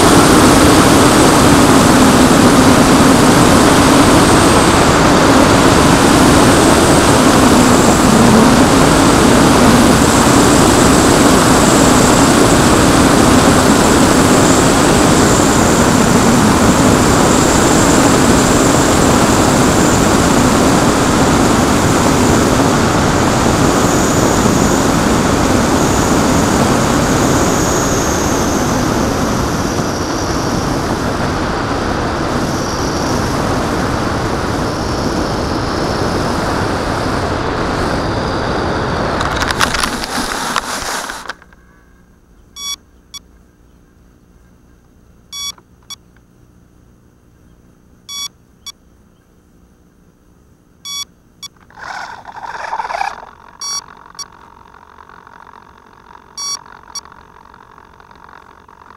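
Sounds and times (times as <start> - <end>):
wind rush: 0.0 - 41.2
electric motor and propeller whine: 0.0 - 42.8, 51.4 - 58.9
brief rustle: 39.2 - 41.7
short electronic beeps: 42.6 - 43.2, 45.3 - 46.0, 48.1 - 48.8, 50.8 - 51.7, 53.1 - 54.3, 56.4 - 57.1.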